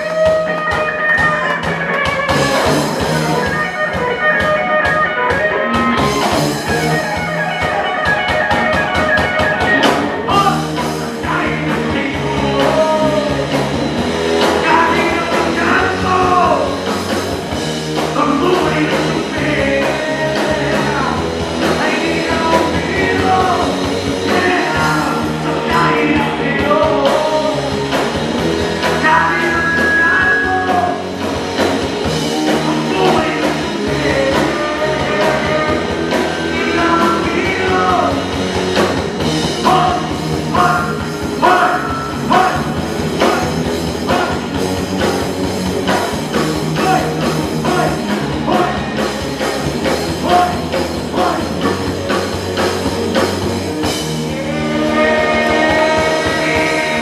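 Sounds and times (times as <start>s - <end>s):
rock band playing live: 0.0s - 57.0s
man singing: 10.3s - 13.6s, 14.5s - 16.9s, 18.1s - 28.0s, 28.8s - 31.1s, 32.3s - 38.4s, 39.6s - 44.6s, 46.8s - 49.0s, 50.2s - 51.7s, 54.2s - 57.0s.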